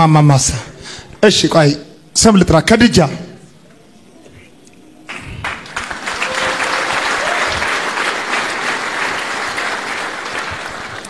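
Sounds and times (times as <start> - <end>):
crowd applauding: 5.1 - 11.0.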